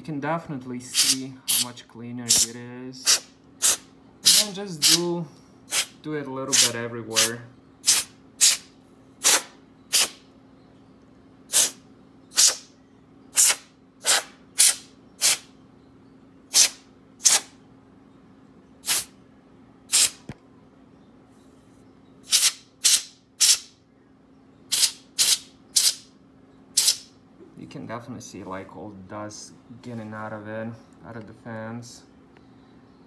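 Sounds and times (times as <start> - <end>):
compressed air hissing blasts: 0.9 - 1.7, 2.3 - 5.1, 5.7 - 10.2, 11.5 - 12.7, 13.3 - 15.5, 16.5 - 17.5, 18.8 - 19.2, 19.9 - 20.3, 22.2 - 23.7, 24.7 - 26.1, 26.8 - 27.1.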